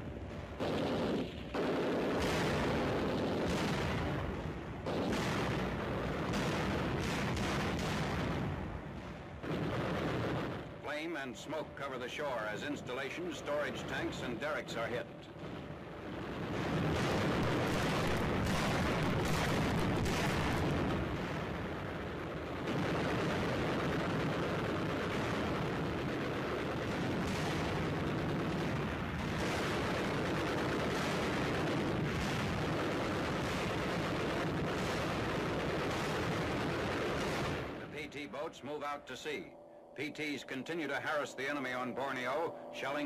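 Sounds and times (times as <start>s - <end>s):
single gunshots: 0.6s - 8.6s, 16.6s - 21.2s
deck guns firing: 16.8s - 20.8s.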